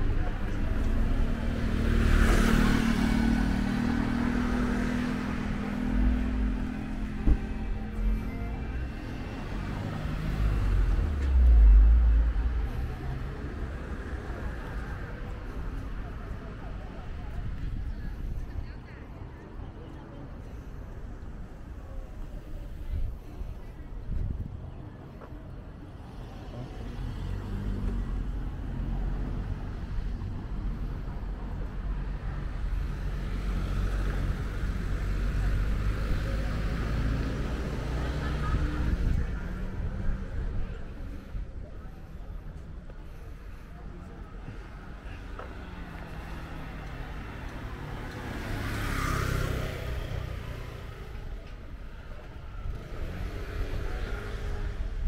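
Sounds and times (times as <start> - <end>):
low street rumble: 0.0 - 55.0
vehicle engine hum: 0.0 - 55.0
motor scooter passing: 45.2 - 51.4.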